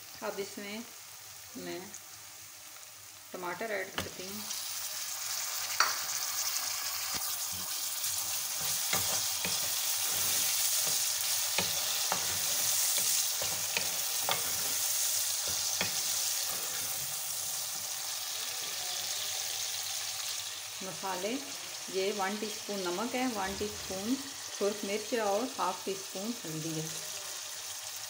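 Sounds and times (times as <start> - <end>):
tomatoes sizzling in hot oil: 0.0 - 28.0
wooden spoon scraping a pan: 7.1 - 17.9.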